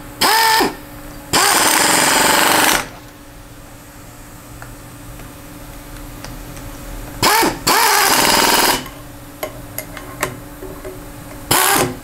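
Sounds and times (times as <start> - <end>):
pneumatic wrench running: 0.2 - 2.9, 7.2 - 8.9, 11.5 - 12.0.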